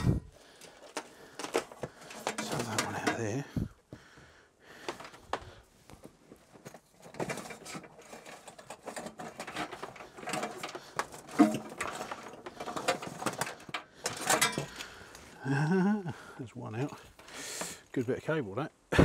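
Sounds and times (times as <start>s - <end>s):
wire rustling and scraping: 0.0s - 3.7s, 4.8s - 15.4s.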